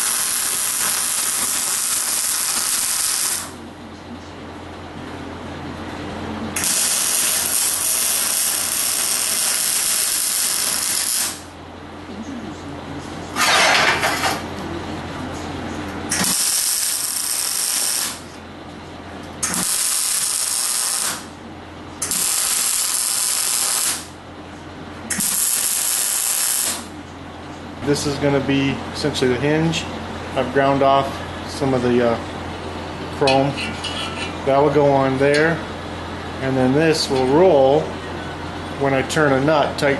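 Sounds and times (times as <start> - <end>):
welder arc crackling: 0.0 - 3.6, 6.6 - 11.5, 16.1 - 18.4, 19.4 - 21.3, 22.0 - 24.2, 25.1 - 26.9
steady low hum: 0.0 - 39.9.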